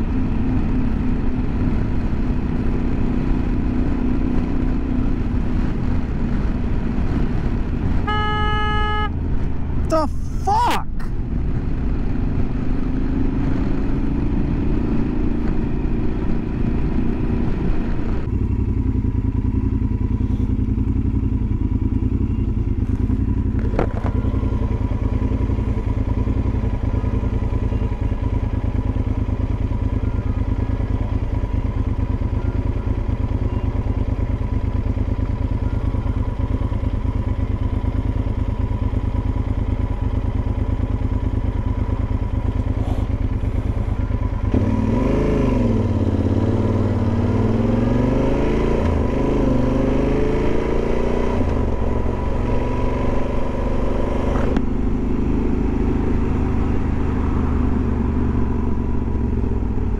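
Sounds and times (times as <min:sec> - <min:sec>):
motorcycle engine riding: 0:00.0 - 0:59.9
motorcycle engine idling: 0:18.3 - 0:45.0, 0:55.9 - 0:59.9.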